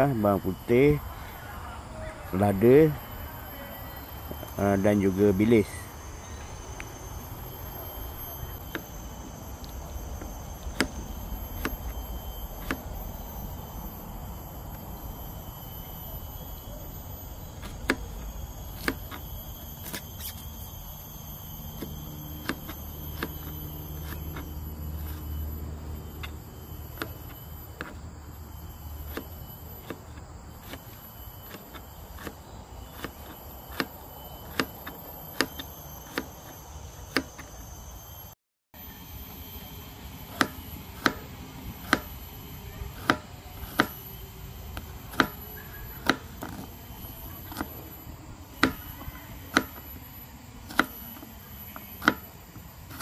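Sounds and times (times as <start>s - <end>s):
insects buzzing: 0.0s - 53.0s
knife chopping on cutting board: 43.0s - 44.0s.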